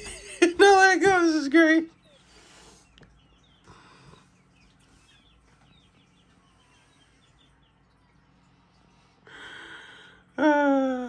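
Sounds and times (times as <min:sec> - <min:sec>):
chicks chirping: 0:00.0 - 0:09.2.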